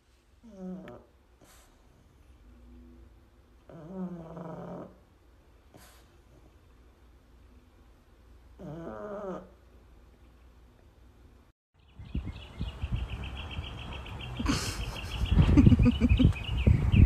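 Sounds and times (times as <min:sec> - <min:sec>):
dog moaning: 0:00.4 - 0:01.1, 0:03.6 - 0:05.1, 0:08.6 - 0:09.6.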